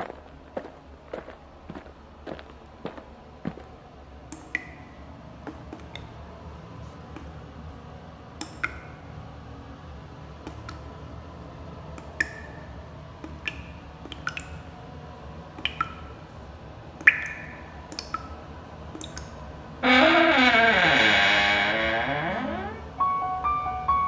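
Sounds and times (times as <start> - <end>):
low room hum: 0.0 - 24.0.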